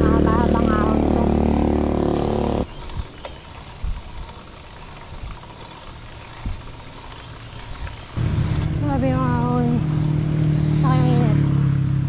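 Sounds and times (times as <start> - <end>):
vehicle engine running loud: 0.0 - 2.7, 8.2 - 12.0
bicycle road noise: 0.0 - 12.0
wind rumble: 0.0 - 12.0.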